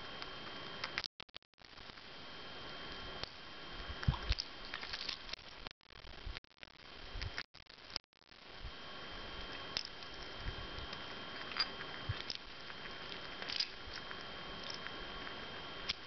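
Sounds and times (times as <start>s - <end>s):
chipmunk cracking seed shells: 11.4s - 16.0s.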